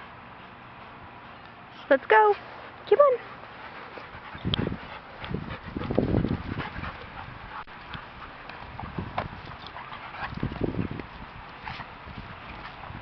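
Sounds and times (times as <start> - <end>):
dogs scuffling: 2.3 - 13.0
paw footfalls: 3.9 - 11.9.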